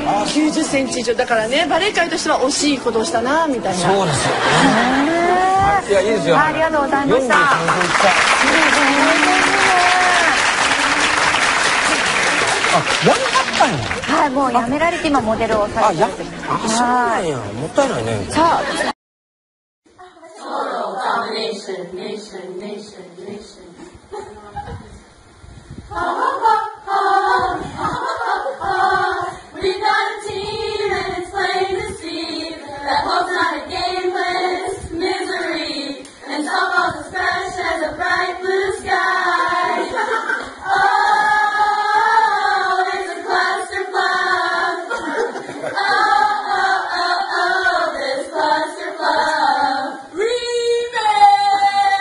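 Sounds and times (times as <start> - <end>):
group of women singing: 20.0 - 24.8, 25.9 - 52.0.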